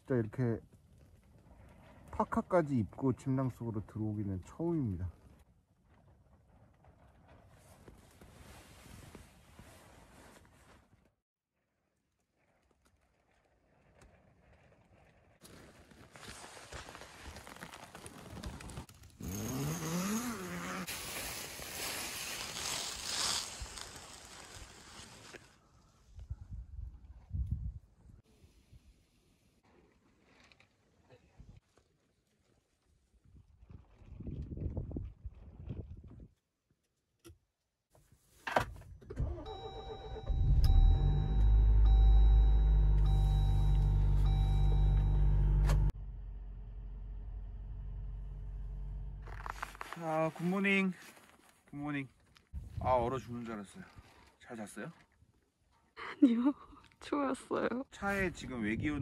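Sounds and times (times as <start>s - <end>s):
tent fabric rustling: 7.5s - 11.2s, 15.4s - 25.6s, 49.2s - 52.5s
car engine starting and idling: 39.0s - 49.8s
electronic warning tone: 39.5s - 45.9s
short rising pitched sound: 40.1s - 49.3s.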